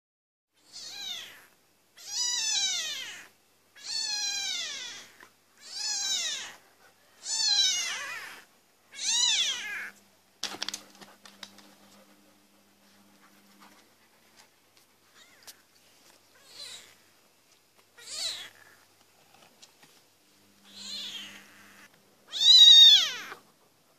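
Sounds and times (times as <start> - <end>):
kitten mewing: 0.7 - 6.6, 7.2 - 10.0, 20.6 - 23.4
faint clicks and scuffs: 10.0 - 16.4, 17.4 - 18.0, 18.8 - 20.2.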